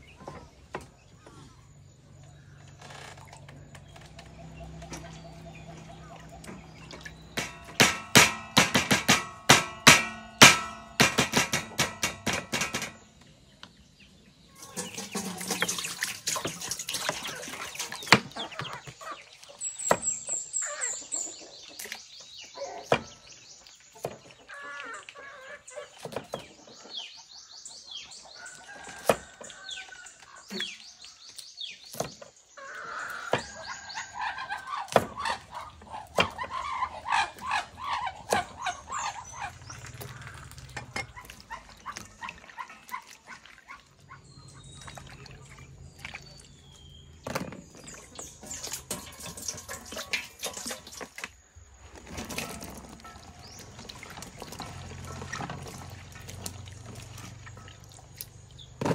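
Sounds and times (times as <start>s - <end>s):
chickens clucking: 3.3s - 58.9s
bird chirping: 12.9s - 28.9s
water pouring into steel basin: 14.6s - 18.2s, 47.8s - 51.2s, 52.1s - 58.6s.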